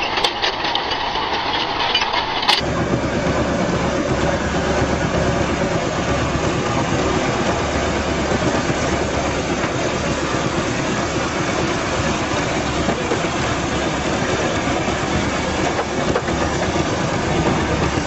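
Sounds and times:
steel plates clattering: 0.0s - 2.6s
tractor engine running: 0.0s - 18.0s.

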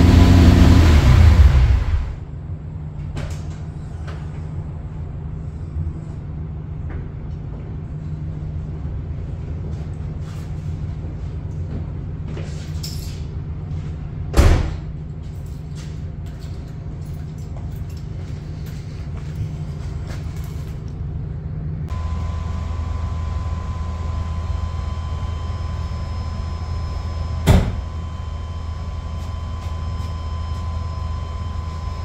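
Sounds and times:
loud engine burst: 0.0s - 2.3s
car engine idling: 0.0s - 2.8s, 20.9s - 32.0s.

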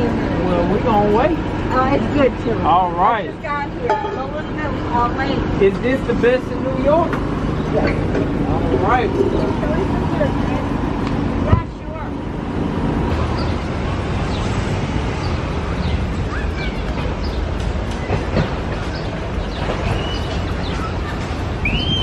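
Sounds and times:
outdoor rumble and hiss: 0.0s - 22.0s
high bird chirps: 19.0s - 22.0s.

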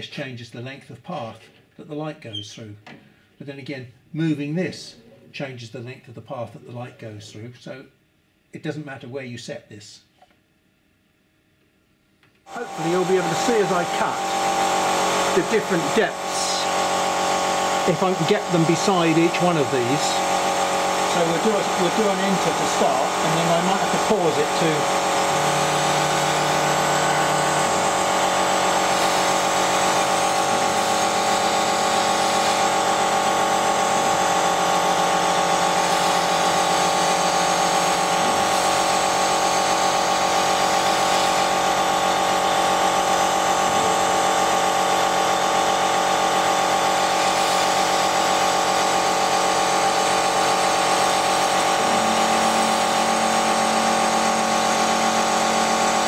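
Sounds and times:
laser cutter mechanical hum: 12.5s - 56.0s.

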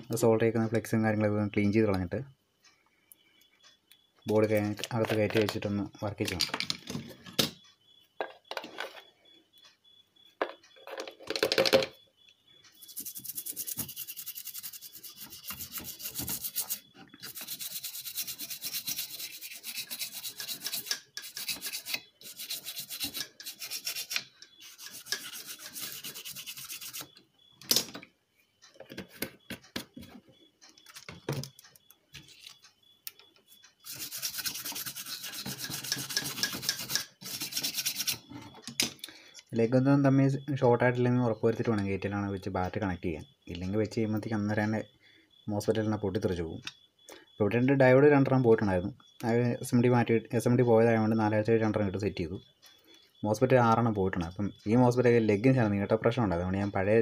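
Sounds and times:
brush scrubbing circuit board: 12.8s - 27.1s, 33.8s - 38.3s.

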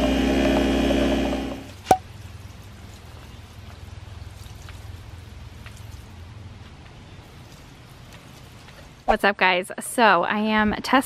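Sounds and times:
water pouring from watering can: 1.7s - 6.2s, 7.1s - 9.1s.

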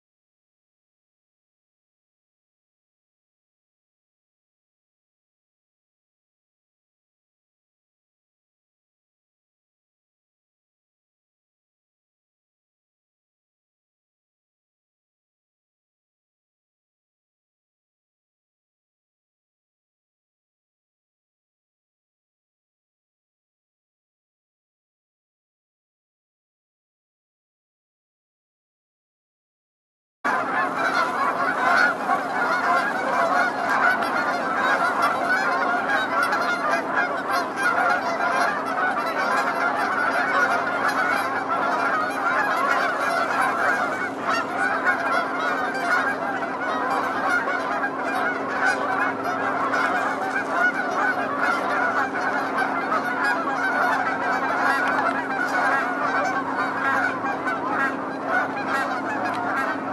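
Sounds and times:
geese honking: 30.3s - 59.9s.

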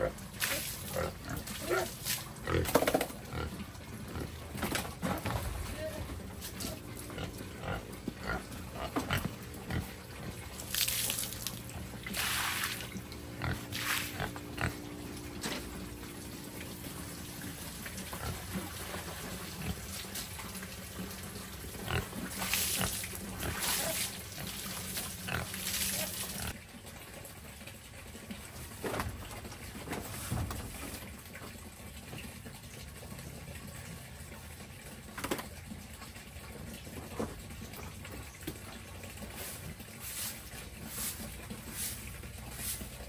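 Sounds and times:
pigs grunting: 0.0s - 10.8s, 11.6s - 26.6s.

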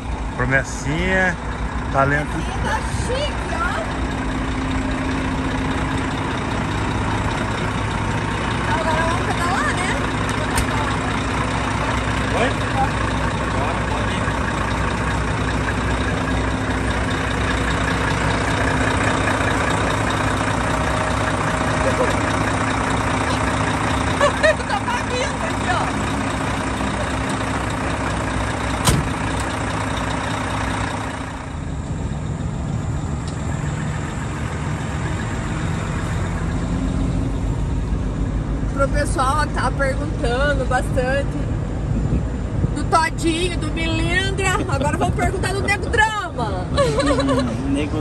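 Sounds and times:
diesel truck engine idling: 0.0s - 48.0s.

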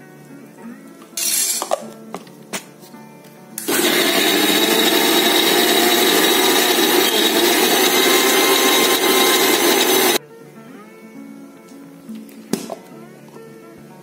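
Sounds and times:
mixer grinder running: 3.6s - 10.2s.

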